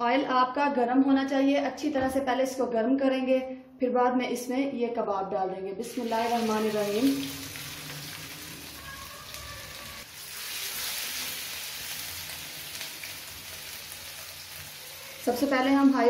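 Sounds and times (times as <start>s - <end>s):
patties sizzling in oil: 5.8s - 16.0s.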